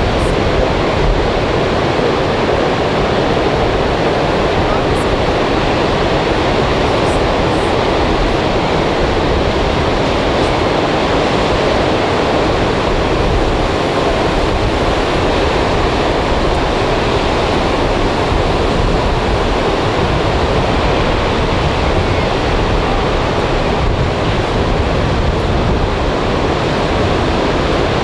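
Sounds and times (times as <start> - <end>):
ocean waves breaking: 0.0 - 28.0.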